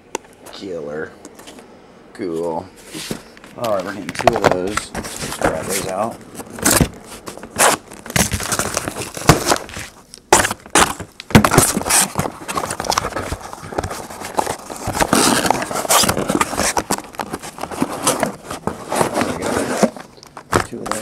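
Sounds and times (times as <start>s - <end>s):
cardboard scraping and rustling: 2.4s - 21.0s
cardboard boxes knocking: 8.0s - 21.0s.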